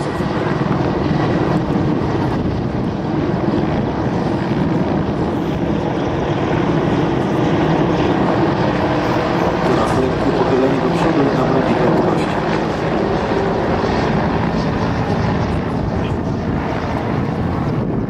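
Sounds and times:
helicopters flying overhead: 0.0s - 18.0s.

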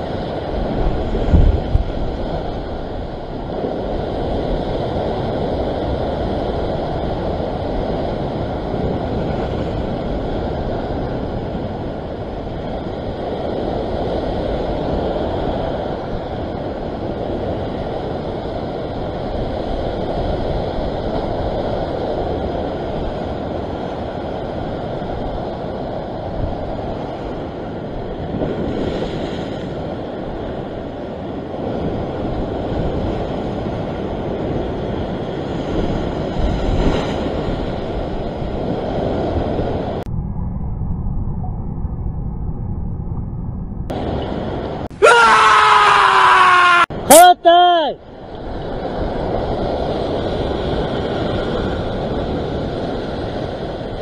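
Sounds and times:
wind buffeting microphone: 0.0s - 45.0s, 48.0s - 54.0s
surf breaking on rocks: 26.7s - 40.0s.

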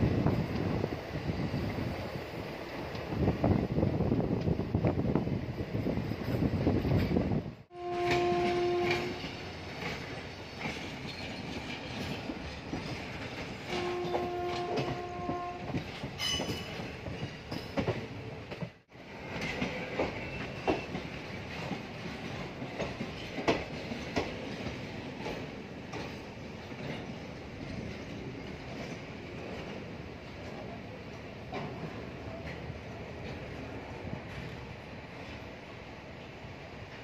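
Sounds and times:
train horn blast: 7.7s - 9.5s, 13.7s - 15.8s
train wheels clattering over joints: 8.1s - 30.6s.

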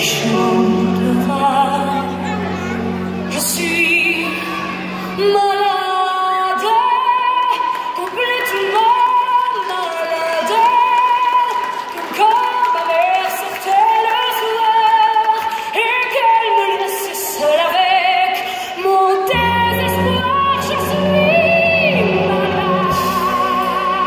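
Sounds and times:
low musical accompaniment: 0.0s - 6.0s, 19.2s - 24.0s
woman singing with vibrato: 0.0s - 24.0s.

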